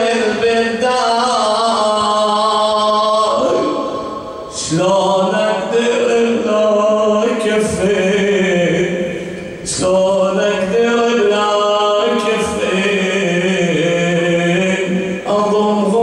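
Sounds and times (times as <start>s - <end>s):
man chanting into a microphone: 0.0s - 16.0s.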